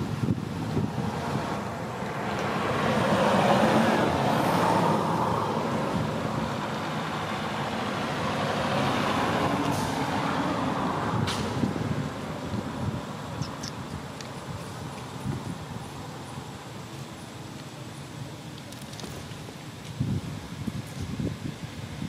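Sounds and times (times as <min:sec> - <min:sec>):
truck engine noise: 0:00.0 - 0:21.5
sharp clicks: 0:13.4 - 0:14.4.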